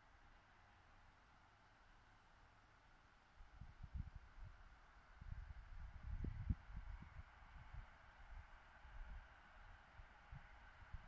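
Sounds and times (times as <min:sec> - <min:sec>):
wind buffeting microphone: 0:05.3 - 0:07.7.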